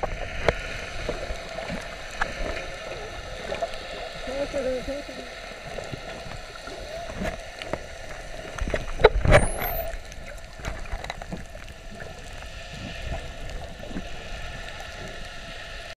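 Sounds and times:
low underwater rumble: 0.0 - 15.9
dolphin whistle: 9.4 - 9.9.

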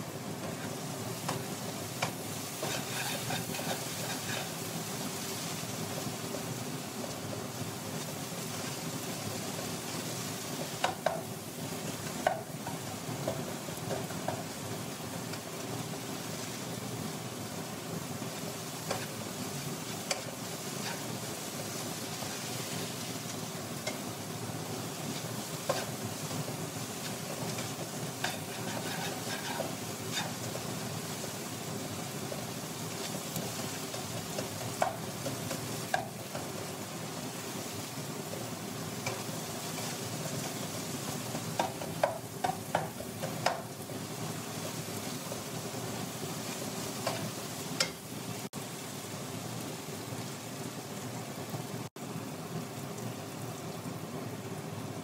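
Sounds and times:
vegetables sizzling in oil: 0.0 - 55.0
spatula stirring and scraping: 0.4 - 5.6, 18.9 - 24.1, 24.9 - 31.2, 39.0 - 43.8, 46.4 - 48.0
spatula tapping pan: 1.2 - 4.5, 10.8 - 11.3, 12.0 - 14.6, 18.9 - 19.2, 20.0 - 21.1, 23.2 - 24.2, 25.1 - 26.4, 27.0 - 30.4, 33.0 - 36.7, 39.0 - 43.7, 47.0 - 48.0.

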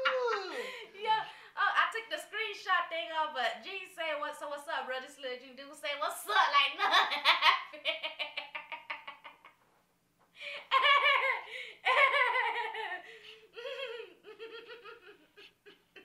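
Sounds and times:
woman laughing: 0.0 - 1.2, 10.4 - 16.0.

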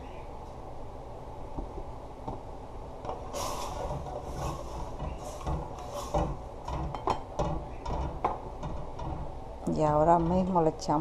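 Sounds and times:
sharp clicks and knocks: 3.0 - 11.0
soft hissing swishes: 3.2 - 6.2.

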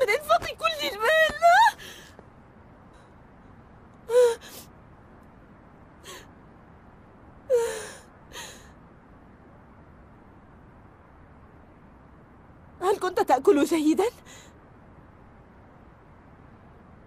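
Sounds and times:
woman sobbing: 1.2 - 2.0, 4.1 - 4.6, 7.5 - 8.6.

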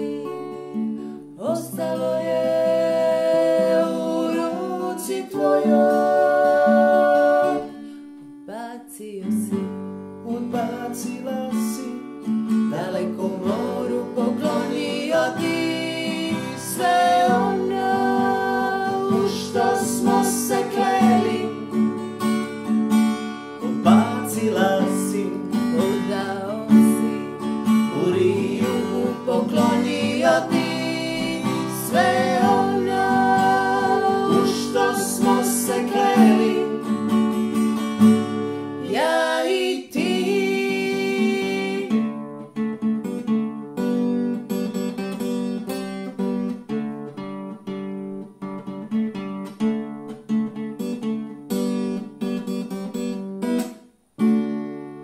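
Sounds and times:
acoustic guitar strumming: 0.0 - 8.5, 9.4 - 55.0
person singing: 0.0 - 9.6, 10.2 - 21.8, 23.7 - 37.4, 38.8 - 42.1.

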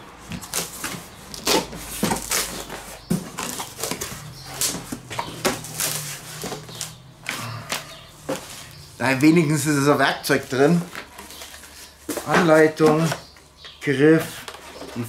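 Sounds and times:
cardboard scraping and rustling: 0.2 - 9.7, 14.1 - 15.0.

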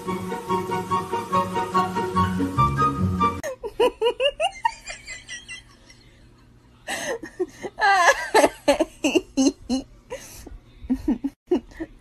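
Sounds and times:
person laughing: 3.4 - 6.1, 6.9 - 12.0.

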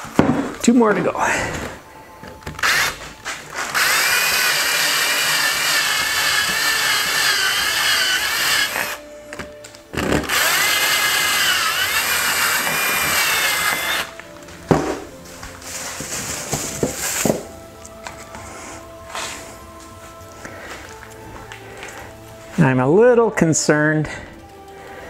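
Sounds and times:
cordless drill whining: 1.4 - 9.1, 9.9 - 14.3.

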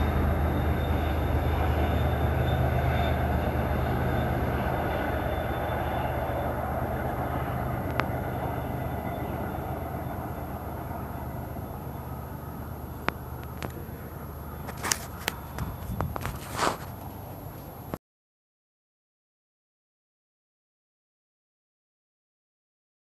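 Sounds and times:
train rumbling: 0.0 - 18.0.

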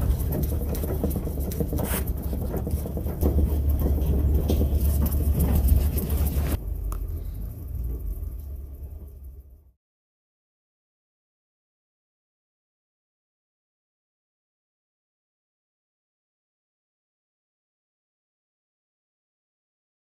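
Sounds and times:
animals rattling wire-mesh cages: 0.0 - 6.6
heavy low rumble: 0.0 - 9.8.

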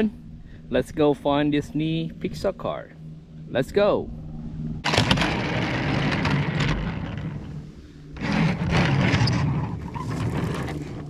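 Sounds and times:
toy truck wheels rolling: 4.9 - 7.5, 8.2 - 11.0.

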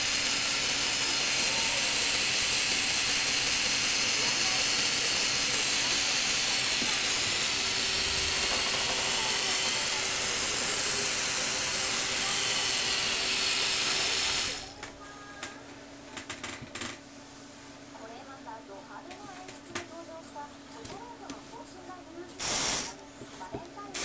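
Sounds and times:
plastic gears whirring: 0.0 - 14.8.

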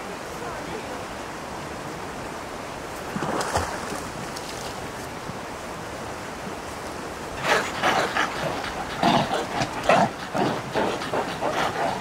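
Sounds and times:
rustle: 0.0 - 12.0
steady outdoor rushing noise: 5.5 - 12.0.

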